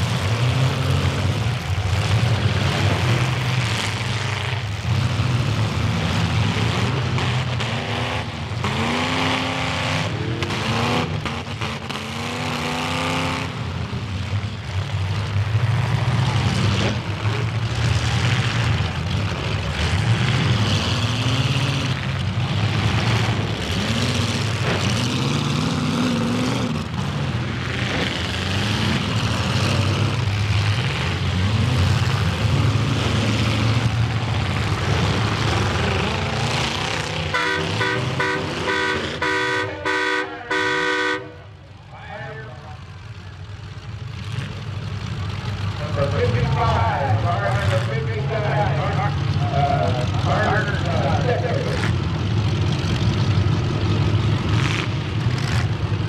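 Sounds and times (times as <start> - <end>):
car engines revving: 0.0 - 56.0
car horn: 37.3 - 41.5.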